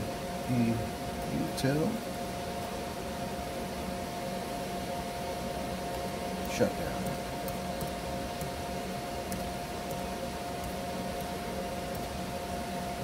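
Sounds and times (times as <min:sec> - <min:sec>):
steady machine hum: 0:00.0 - 0:13.0
laptop keys clicking: 0:07.0 - 0:08.6, 0:09.2 - 0:12.2.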